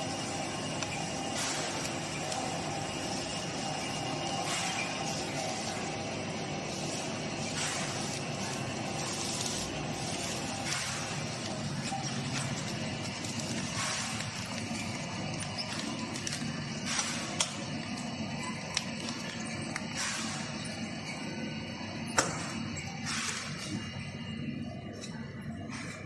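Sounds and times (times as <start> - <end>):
workshop background noise: 0.0 - 26.0
plastic film rustling: 7.8 - 17.8.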